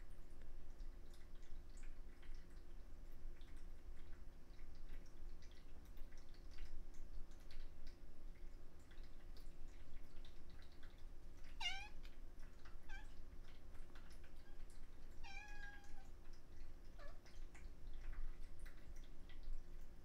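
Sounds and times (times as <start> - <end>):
cat meowing: 11.6 - 12.0, 12.8 - 13.1, 15.2 - 16.1.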